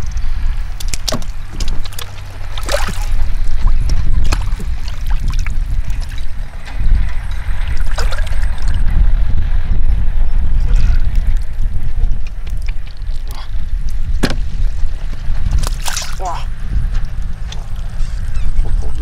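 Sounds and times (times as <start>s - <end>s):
low rumble: 0.0s - 19.0s
hands squelching through mud: 0.8s - 6.2s, 15.5s - 16.3s.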